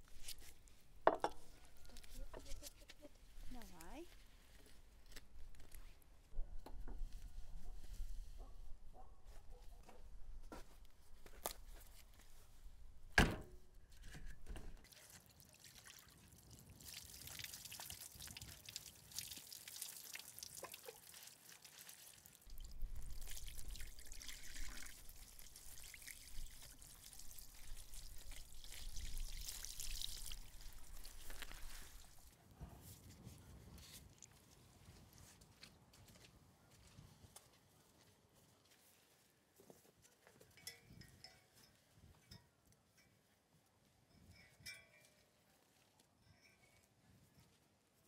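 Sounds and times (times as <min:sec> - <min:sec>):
water trickling and splashing: 0:14.8 - 0:32.4.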